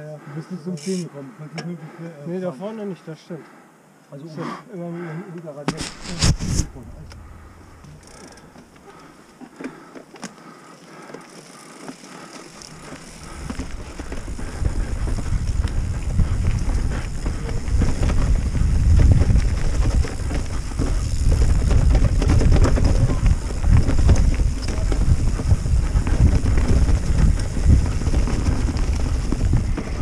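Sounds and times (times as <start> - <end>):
bike tyre noise: 5.7 - 30.0
wind rushing over microphone: 5.8 - 8.3, 13.2 - 30.0.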